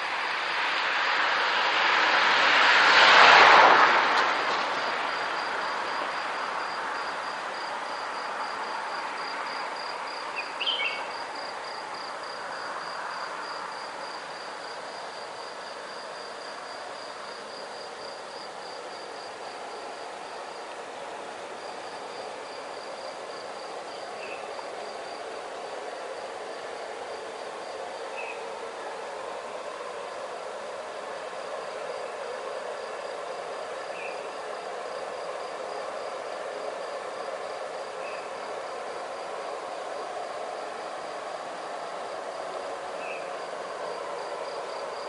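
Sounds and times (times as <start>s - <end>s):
car driving past: 0.0s - 10.2s
steady traffic hum: 0.0s - 45.0s
insect trill: 4.7s - 45.0s.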